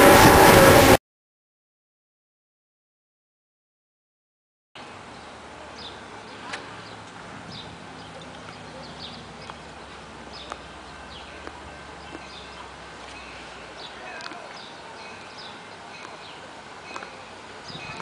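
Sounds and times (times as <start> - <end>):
small birds chirping: 5.1 - 18.0.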